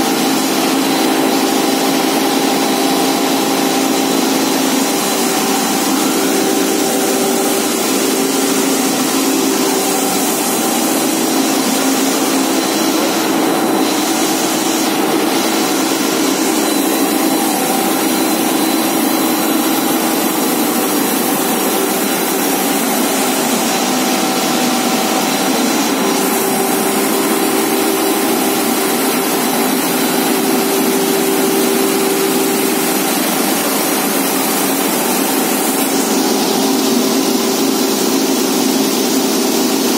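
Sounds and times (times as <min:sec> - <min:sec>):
industrial machinery running: 0:00.0 - 0:39.9.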